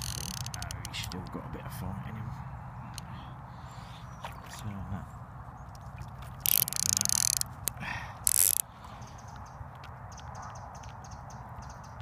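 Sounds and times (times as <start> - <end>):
loud rasping reel bursts: 0.0 - 0.7
fishing reel ticking: 0.0 - 1.2, 6.4 - 8.7.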